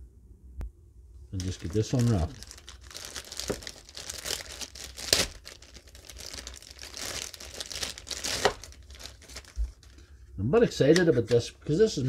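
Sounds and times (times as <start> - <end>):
plastic bag crinkling: 1.4 - 10.0.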